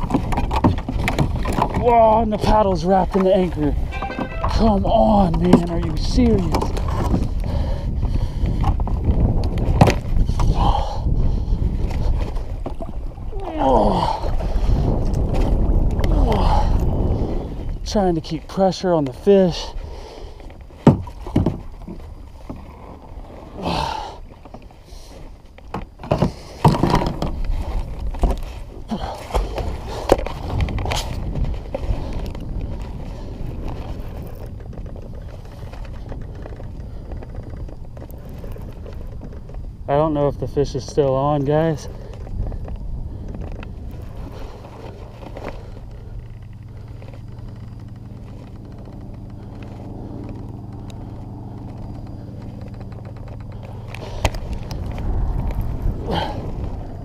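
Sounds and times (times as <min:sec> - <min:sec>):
wind buffeting microphone: 0:00.0 - 0:24.4, 0:25.2 - 0:57.0
short downward sliding sound: 0:03.9 - 0:04.9.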